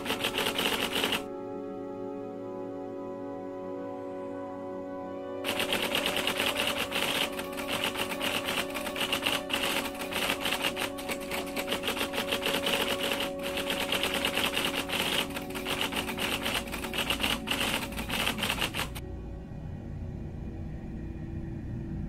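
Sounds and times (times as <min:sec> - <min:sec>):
typewriter keystroke clicks: 0:00.0 - 0:01.3, 0:05.5 - 0:19.0
low background drone: 0:00.0 - 0:22.0
low rumble: 0:19.0 - 0:22.0.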